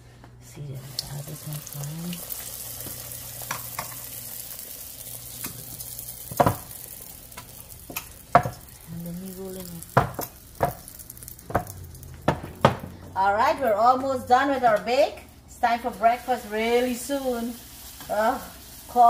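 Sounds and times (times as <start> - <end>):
dough sizzling in hot oil: 0.8 - 12.9, 15.6 - 19.0
kitchen knocks and taps: 6.3 - 6.7, 7.9 - 8.6, 9.9 - 13.0.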